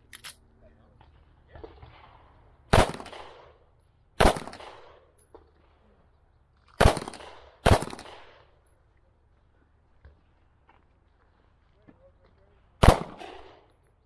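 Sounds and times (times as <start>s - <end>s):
pistol shots with echo: 1.6s - 3.6s, 4.2s - 5.1s, 6.8s - 8.5s, 12.8s - 13.7s.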